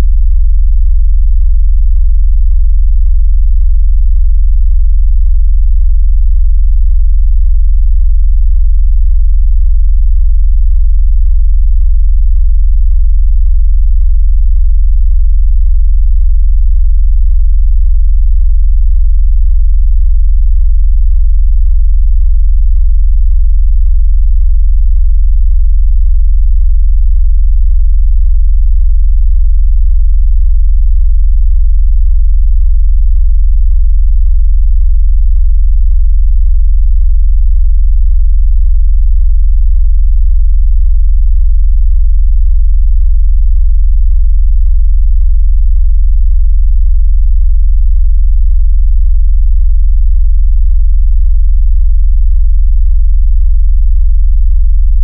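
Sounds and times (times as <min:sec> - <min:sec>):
deep fluttering bass tone: 0:00.0 - 0:41.0.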